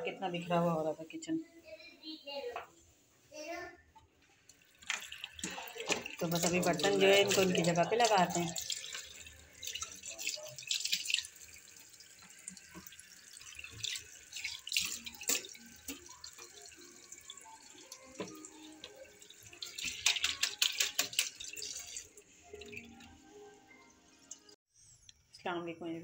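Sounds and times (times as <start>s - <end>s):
tap running into metal sink: 18.1s - 18.5s, 19.6s - 21.9s
hands splashing water: 19.6s - 22.9s.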